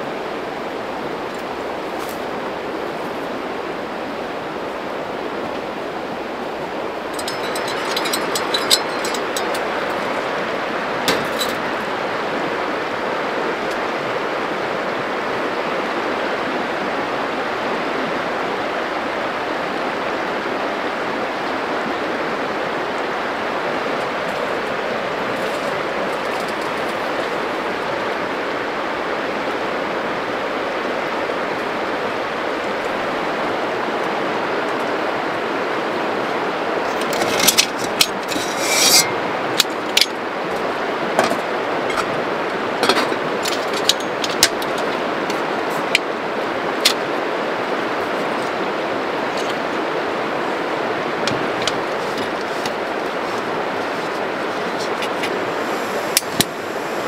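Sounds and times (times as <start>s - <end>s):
river water rushing: 0.0s - 57.0s
camping gear clicking and rubbing: 1.3s - 2.3s, 7.1s - 11.9s, 24.0s - 27.5s, 36.8s - 46.1s, 50.4s - 57.0s.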